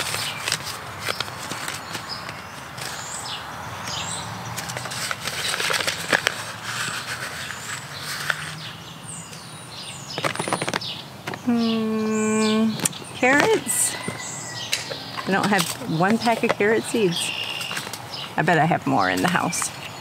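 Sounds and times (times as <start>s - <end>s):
paper packet rustling: 0.0s - 3.1s, 4.6s - 8.7s, 10.2s - 11.4s, 15.2s - 18.0s
small birds chirping: 0.0s - 20.0s.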